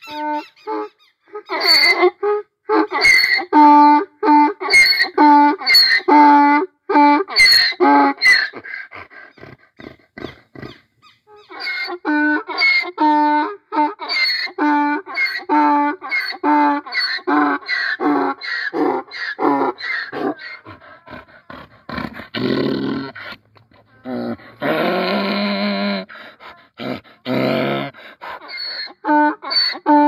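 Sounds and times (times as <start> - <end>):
donkey braying: 0.0 - 30.0.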